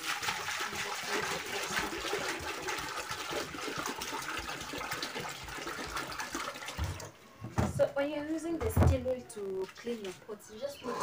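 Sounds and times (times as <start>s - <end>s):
water poured into metal pot: 0.0s - 7.2s.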